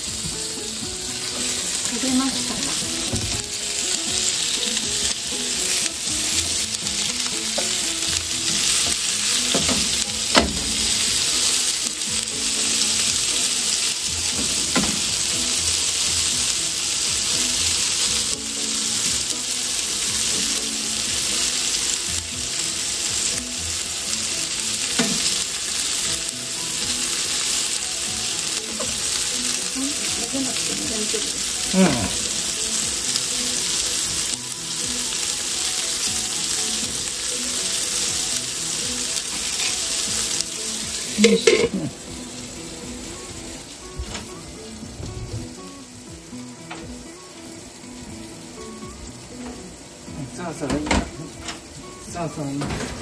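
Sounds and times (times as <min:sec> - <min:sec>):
food sizzling in a frying pan: 0:00.0 - 0:53.0
utensil knocking against pan: 0:09.5 - 0:10.9.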